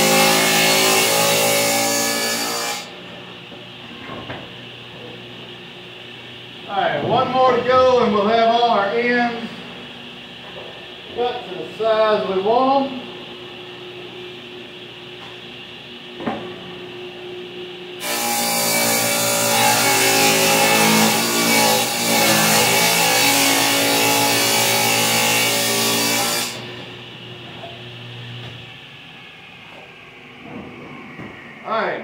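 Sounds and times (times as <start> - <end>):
table saw cutting wooden board: 0.0 - 2.9, 18.0 - 26.7.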